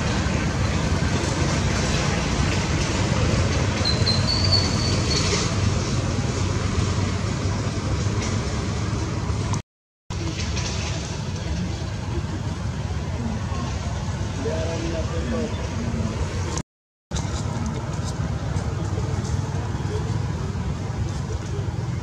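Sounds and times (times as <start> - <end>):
low rumbling background noise: 5.2 - 22.0.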